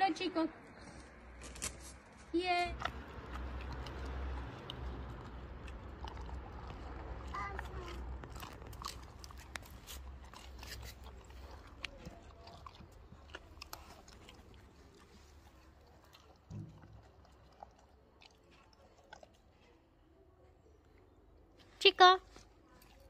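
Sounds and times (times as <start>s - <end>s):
dog chewing a crunchy treat: 2.7s - 19.8s, 22.3s - 23.0s.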